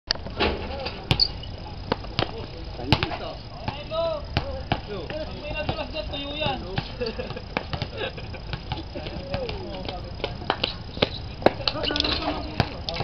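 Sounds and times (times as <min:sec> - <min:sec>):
basketball bouncing on court: 0:01.1 - 0:11.8, 0:12.5 - 0:13.0.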